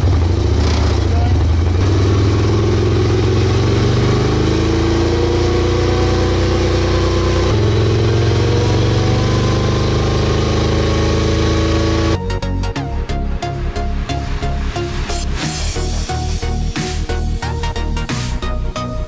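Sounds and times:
motorcycle engine revving under load: 0.0 - 12.2.

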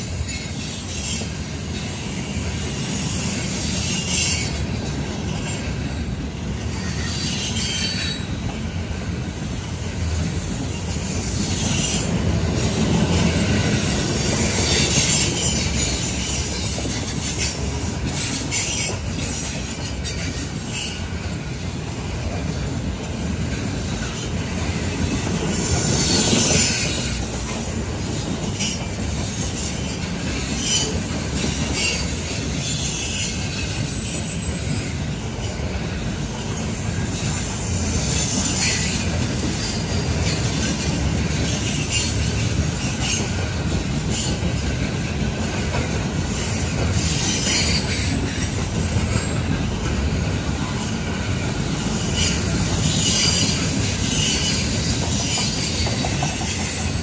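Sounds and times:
train wheels rumbling on rail: 0.0 - 57.0
high-pitched wheel squeals: 13.0 - 21.2, 24.0 - 27.6, 46.3 - 49.5, 51.4 - 57.0.

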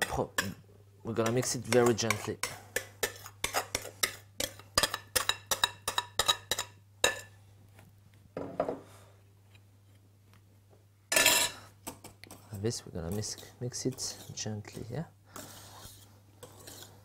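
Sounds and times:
spoon scraping glass bowl: 15.4 - 17.0.

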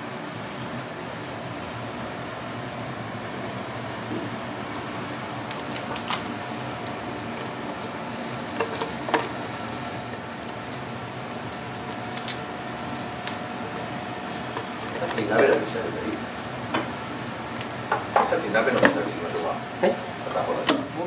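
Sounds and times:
fan humming: 0.0 - 21.0
crab shell cracking: 5.4 - 7.0, 10.2 - 13.4.

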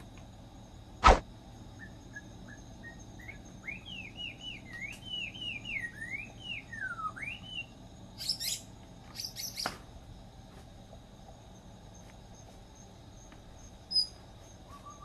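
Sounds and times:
songbird singing: 0.0 - 15.0.

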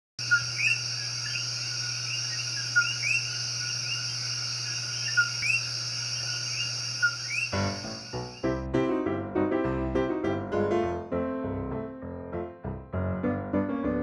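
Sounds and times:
chirping bird calls: 0.2 - 8.4
high insect drone: 0.2 - 8.6.

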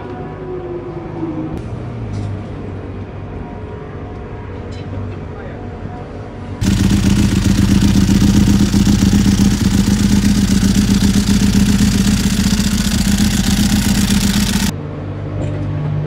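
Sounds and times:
motorcycle engine running: 6.6 - 14.7.

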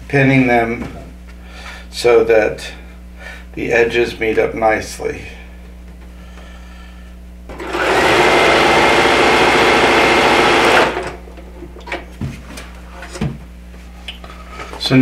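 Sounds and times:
sewing machine stitching: 7.5 - 11.2.

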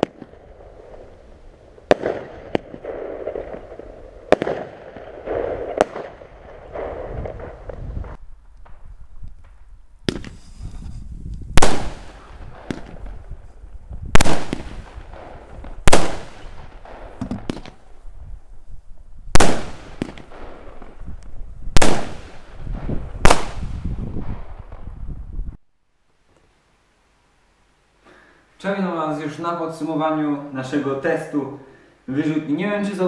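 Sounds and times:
fireworks bangs: 0.0 - 18.0, 19.3 - 25.1.

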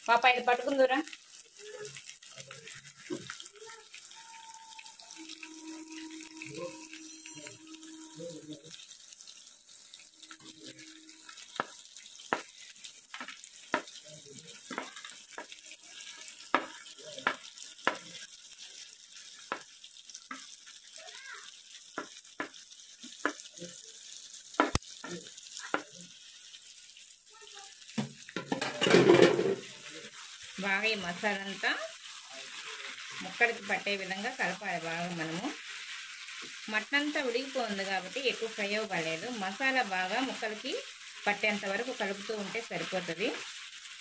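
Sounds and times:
sizzling in oil: 0.0 - 44.0
metal spoon scraping a pan: 4.1 - 19.6, 28.4 - 30.3.

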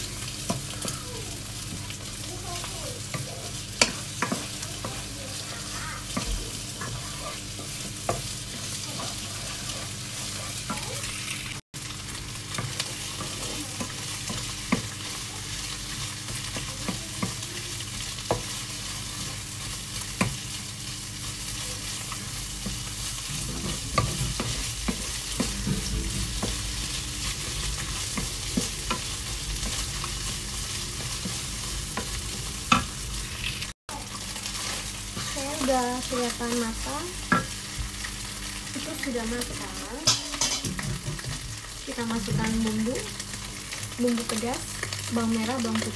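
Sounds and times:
rice sizzling in frying pan: 0.0 - 45.9
spatula knocking pan: 1.7 - 9.2, 22.6 - 26.8, 40.0 - 41.4
spatula scraping: 3.0 - 11.6.

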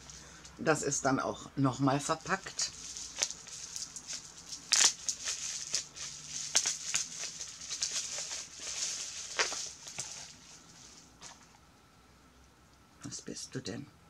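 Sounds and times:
gift wrapping crinkling: 0.0 - 0.5, 2.2 - 11.6.

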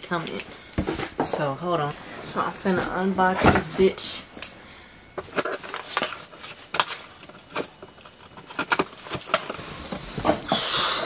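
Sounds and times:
objects being handled: 5.2 - 10.5.

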